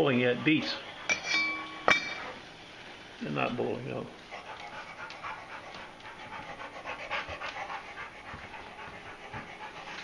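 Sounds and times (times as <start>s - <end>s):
dog panting: 0.0s - 1.2s, 2.1s - 2.5s, 3.7s - 10.0s.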